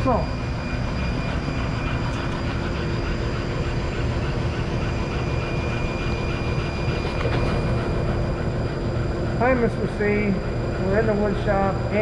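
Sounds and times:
laser engraver whirring: 0.0s - 12.0s.

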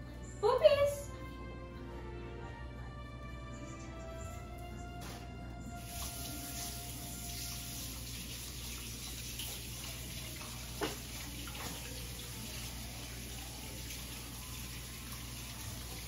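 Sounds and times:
tap running into sink: 9.0s - 12.0s.

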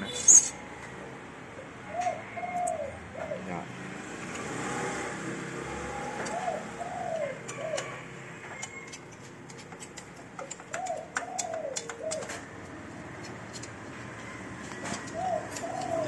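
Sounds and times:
dove cooing: 1.6s - 3.6s, 6.0s - 8.1s, 10.4s - 12.5s, 14.2s - 16.0s
screwdriver clicking on metal frame: 8.6s - 12.4s, 13.2s - 13.9s.

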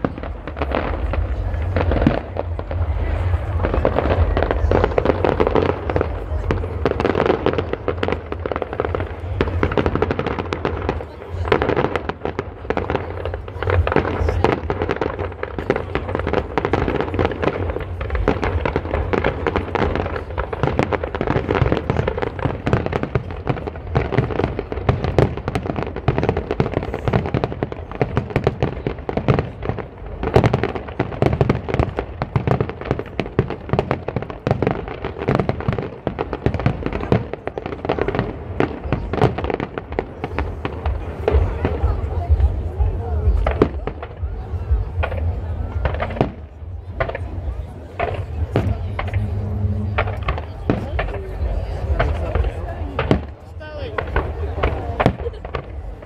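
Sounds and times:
low rumble: 0.0s - 7.0s, 40.4s - 53.0s
fireworks bursting: 0.0s - 56.0s.

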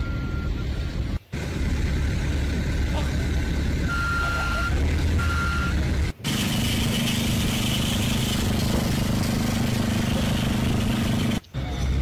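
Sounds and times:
construction machinery running: 0.0s - 12.0s
steady engine hum: 0.0s - 12.0s
reversing alarm beep: 3.9s - 5.8s.

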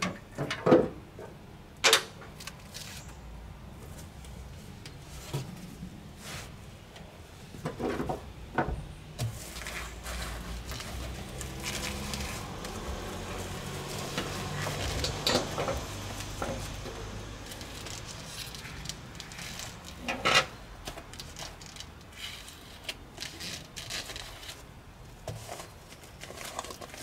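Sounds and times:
foil foam insulation rustling: 9.2s - 27.0s.

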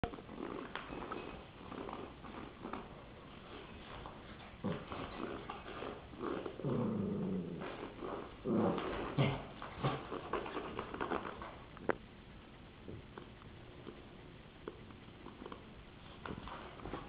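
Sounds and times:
puppy growling and grunting: 4.6s - 11.3s.

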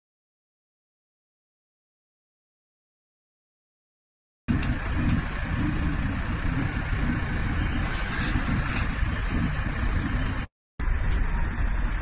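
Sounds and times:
street noise: 4.5s - 12.0s
vehicle engine idling: 4.5s - 12.0s.

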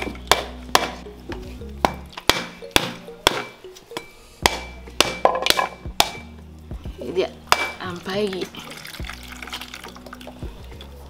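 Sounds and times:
machete knocking on coconut: 0.0s - 1.0s, 1.8s - 3.6s, 4.4s - 6.3s, 7.5s - 7.8s.

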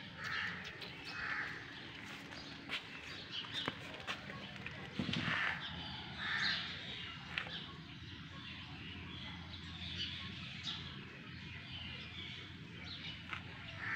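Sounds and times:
birds harsh calls: 0.0s - 7.7s, 11.6s - 13.9s.

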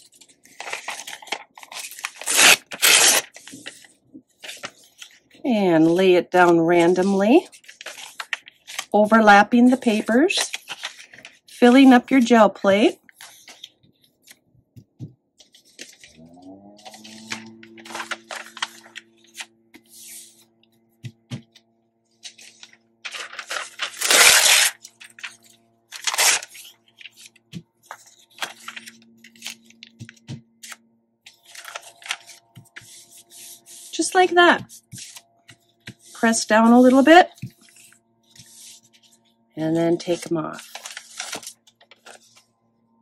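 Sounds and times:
paper tearing and crinkling: 0.1s - 5.2s, 6.5s - 8.9s, 9.8s - 11.9s, 15.5s - 20.5s, 22.2s - 35.3s, 40.0s - 42.5s.

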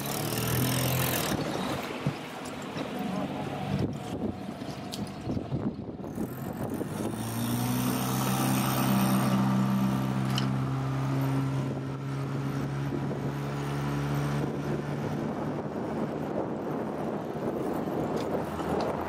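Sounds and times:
wind: 0.0s - 19.0s.

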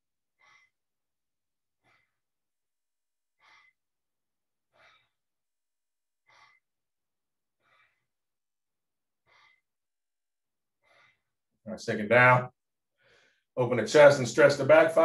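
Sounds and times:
faint short breaths: 0.4s - 0.8s, 1.8s - 2.2s, 3.4s - 3.8s, 4.7s - 5.2s, 6.2s - 6.7s, 7.6s - 8.2s, 9.2s - 9.8s, 10.8s - 11.4s, 13.0s - 13.5s.

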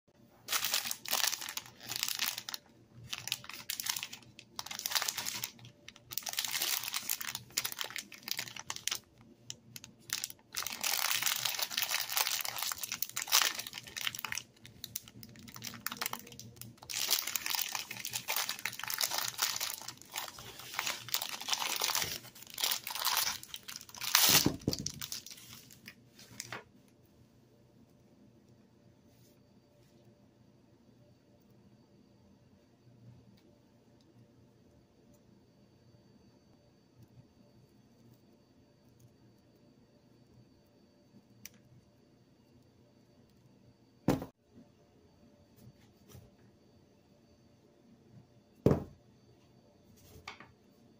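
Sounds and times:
plastic wrapper crinkling: 0.4s - 26.7s.

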